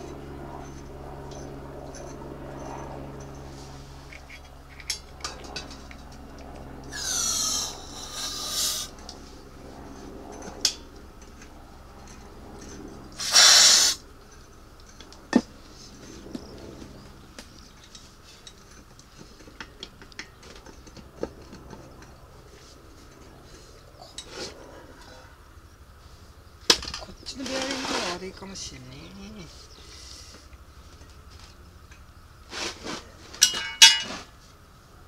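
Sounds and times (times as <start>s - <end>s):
aerosol spray hissing: 13.2s - 14.0s
sharp clicks and light knocks: 16.3s - 22.2s.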